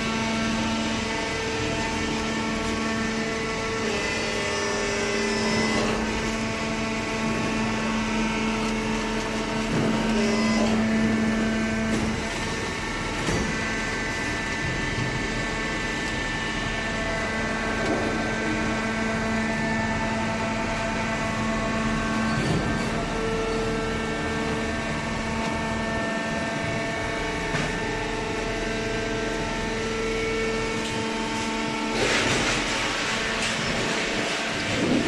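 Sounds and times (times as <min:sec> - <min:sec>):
hydraulic baler humming: 0:00.0 - 0:35.0.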